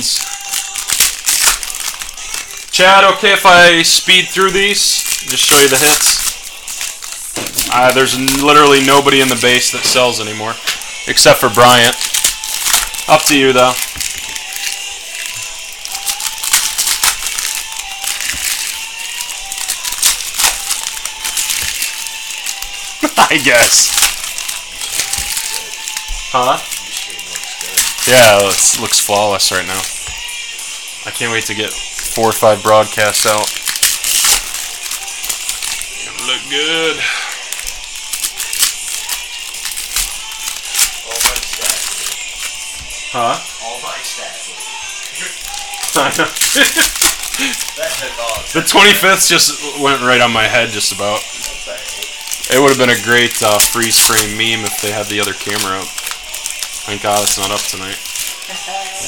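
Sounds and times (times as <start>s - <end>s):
cards snapping and clicking: 0.0s - 2.7s, 4.7s - 30.4s, 31.7s - 36.2s, 37.3s - 42.9s, 45.0s - 49.4s, 50.2s - 58.7s
faint music: 0.0s - 59.0s
wrappers rustling and crinkling: 0.0s - 59.0s.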